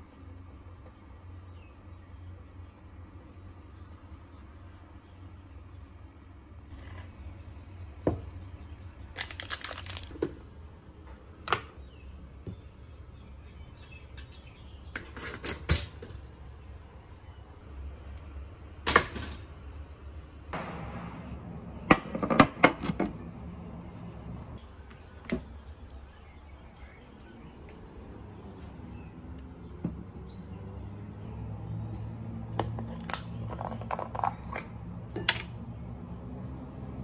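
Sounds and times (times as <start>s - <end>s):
steady low hum: 19.7s - 33.7s
dishes clinking and knocking: 21.9s - 23.2s.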